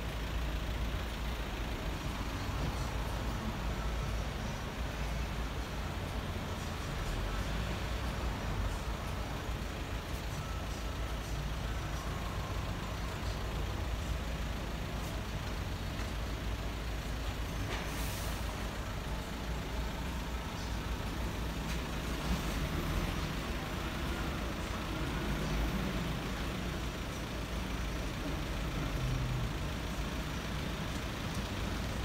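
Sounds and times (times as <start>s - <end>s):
vehicle engine idling: 0.0s - 32.0s
short hiss: 17.7s - 18.6s.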